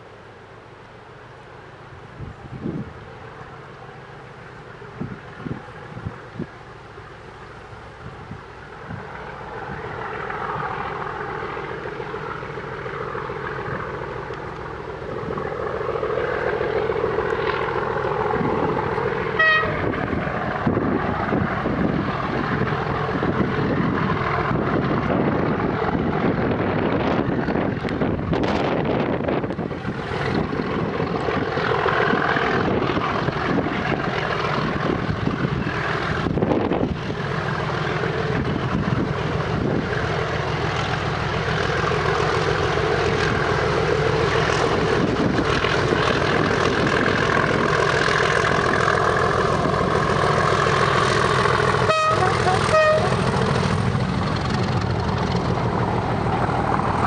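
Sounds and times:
diesel locomotive engines: 0:00.0 - 0:57.0
train horn toot: 0:19.4 - 0:20.0, 0:51.8 - 0:53.2.

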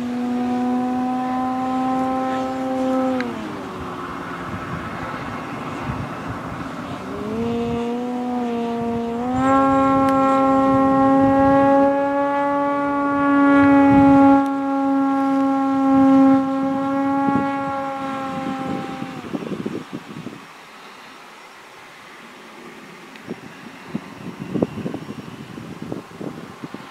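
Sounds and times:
electric model plane motor humming: 0:00.0 - 0:04.5, 0:06.8 - 0:19.8.

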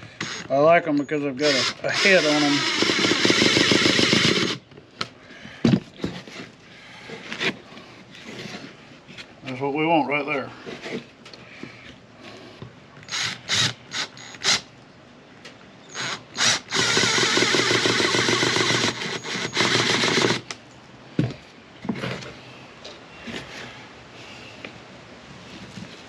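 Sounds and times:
impact driver driving screw: 0:16.0 - 0:20.4.

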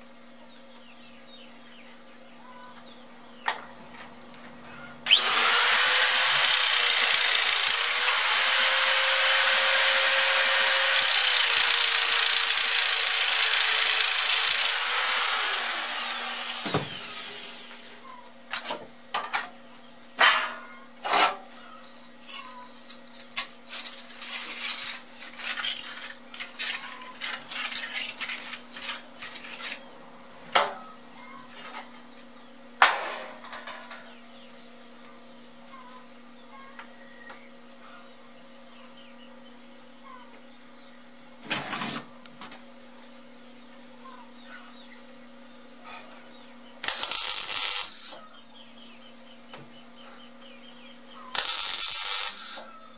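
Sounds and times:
angle grinder on steel plate: 0:05.1 - 0:17.8, 0:46.8 - 0:48.2, 0:51.4 - 0:52.7.

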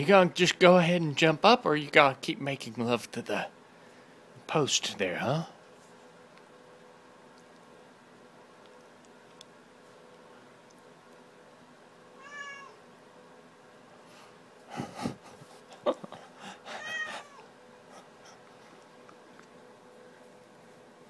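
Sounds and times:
cat meowing: 0:12.2 - 0:12.8, 0:16.8 - 0:17.5.

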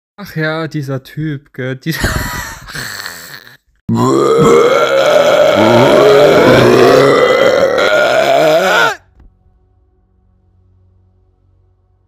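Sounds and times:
croaking burp-like vocal sound: 0:02.8 - 0:09.0.

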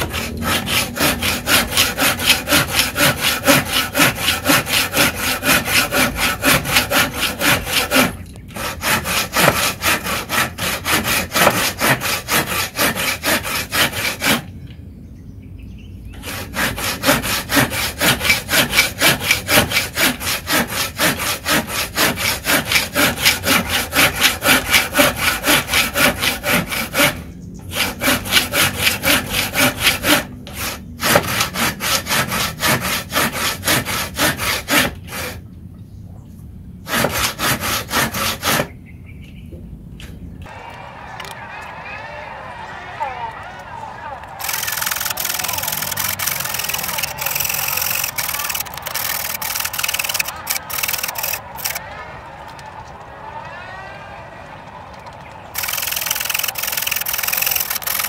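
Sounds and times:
hand saw cutting wood: 0:00.0 - 0:14.5, 0:16.2 - 0:35.4, 0:36.9 - 0:38.7, 0:44.4 - 0:51.8, 0:55.6 - 0:58.0.

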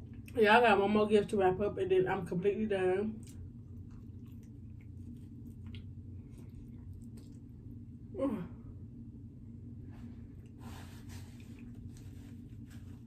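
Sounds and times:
wet chewing and mouth clicks: 0:03.2 - 0:07.8.

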